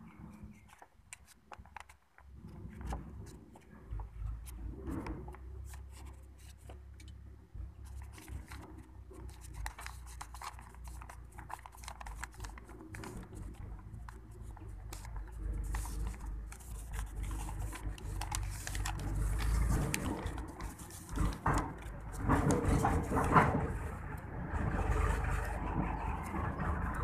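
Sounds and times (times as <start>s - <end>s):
paper pages rustling: 0.5s - 24.2s
low rumble: 13.0s - 27.0s.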